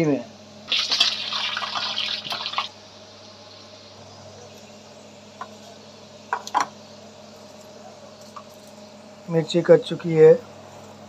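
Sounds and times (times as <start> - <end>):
peanuts sizzling in oil: 0.7 - 2.8.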